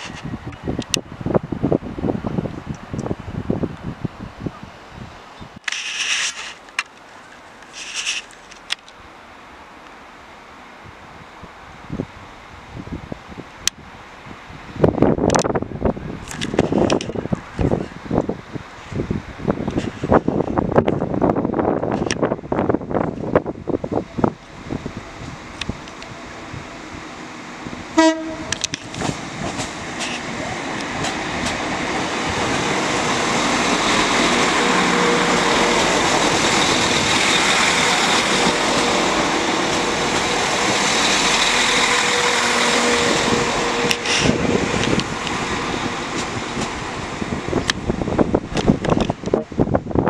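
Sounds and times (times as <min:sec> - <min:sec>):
train passing by: 0:09.0 - 0:50.0
train horn toot: 0:28.0 - 0:28.7, 0:34.0 - 0:36.2, 0:41.2 - 0:44.7.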